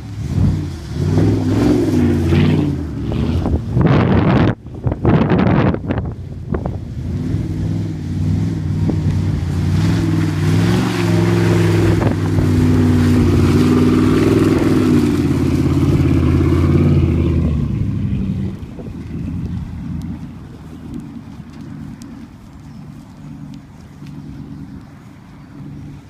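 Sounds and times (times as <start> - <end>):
truck engine revving hard: 0.0 - 24.9
wheels spinning through wet turf: 0.0 - 26.0.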